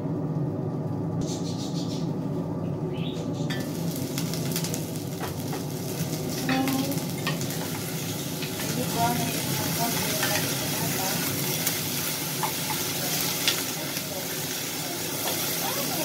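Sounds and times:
steady low hum: 0.0s - 16.0s
potatoes sizzling in a pan: 3.6s - 16.0s.

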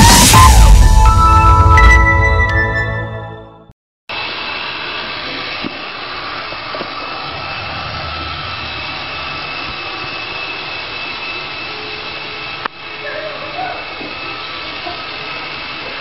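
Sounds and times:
high whine: 0.0s - 2.8s, 4.1s - 16.0s
robot vacuum motor whirring: 4.1s - 16.0s.

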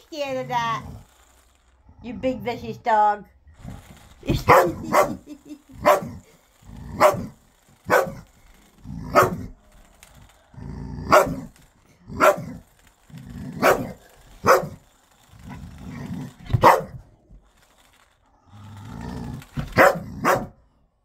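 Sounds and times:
dog growling: 1.8s - 2.6s, 3.5s - 17.1s, 18.3s - 20.6s
dog barking: 4.3s - 5.2s, 5.8s - 6.2s, 7.0s - 7.3s, 7.9s - 8.2s, 9.1s - 9.5s, 11.1s - 11.5s, 12.2s - 12.6s, 13.6s - 14.8s, 16.6s - 17.0s, 19.7s - 20.6s.

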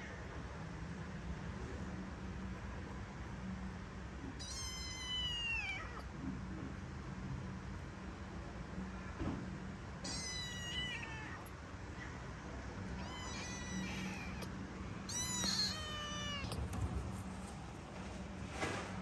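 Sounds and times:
kitten meowing: 4.4s - 6.0s, 10.0s - 11.5s, 12.9s - 16.7s.

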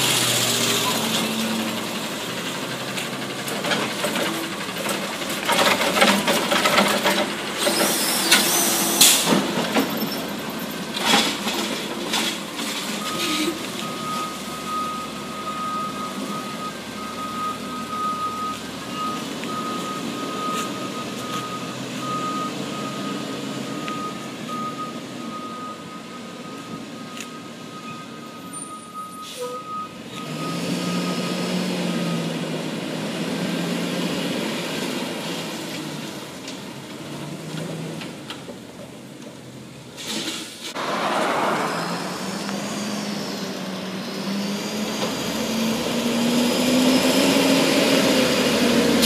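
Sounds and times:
garbage truck engine and hydraulics: 0.0s - 49.0s
backup alarm beeping: 13.0s - 31.1s.

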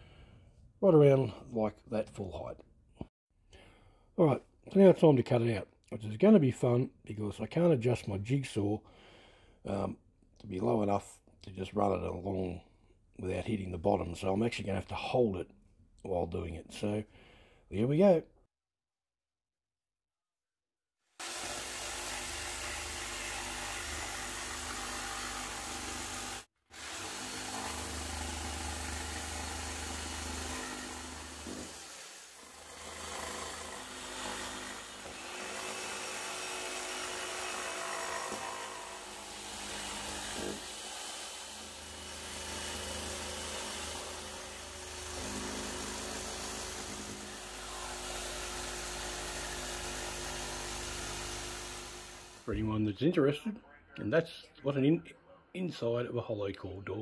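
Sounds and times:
jigsaw cutting wooden door: 21.2s - 52.5s.

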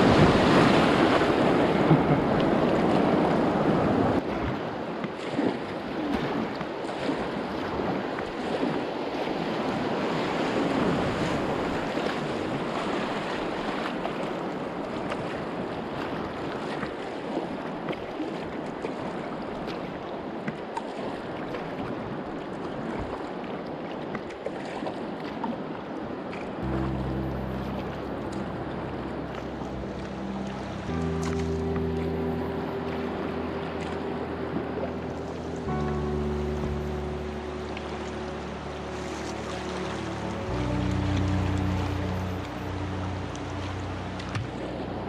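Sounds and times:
river water rushing and splashing: 0.0s - 45.0s.

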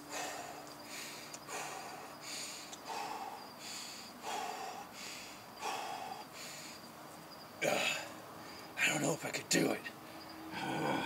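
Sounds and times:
man breathing hard: 0.0s - 7.0s, 10.5s - 11.0s.

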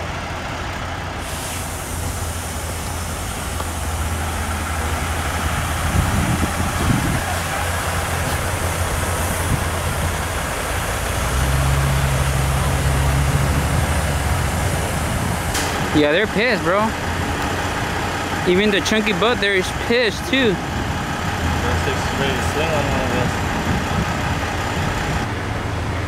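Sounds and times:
car engine running low hum: 0.0s - 26.0s.

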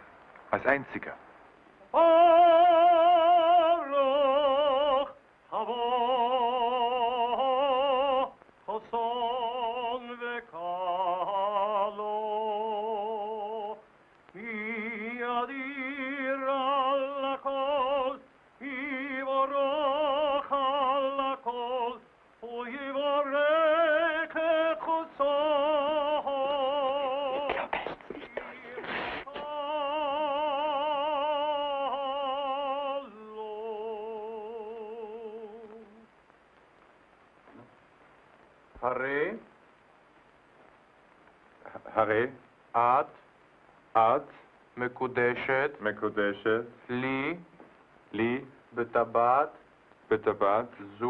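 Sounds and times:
man chanting unaccompanied: 14.4s - 36.0s, 43.9s - 47.5s, 48.1s - 51.0s.

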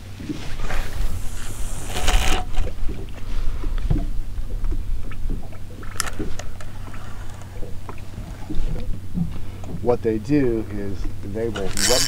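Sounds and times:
boat low rumble: 0.0s - 12.0s
fishing gear knocks and clicks: 5.3s - 8.0s.

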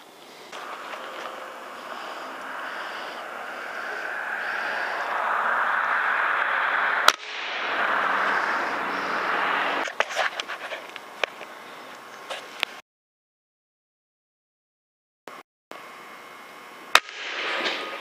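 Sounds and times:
steady background hiss: 0.0s - 12.8s
air rifle shot: 5.7s - 9.5s, 16.9s - 18.0s.

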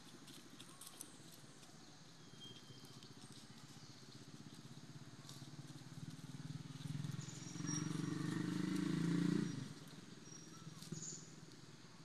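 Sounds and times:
engine running: 3.2s - 11.9s.

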